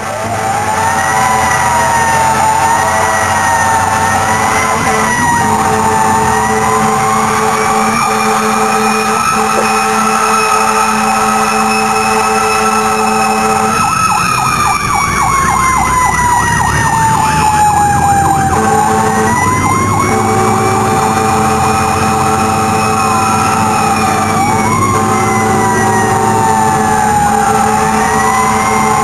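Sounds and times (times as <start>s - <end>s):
wailing siren: 0.0s - 29.0s
warbling siren yelp: 0.0s - 29.0s
low horn-like tone: 2.4s - 13.8s, 18.5s - 29.0s.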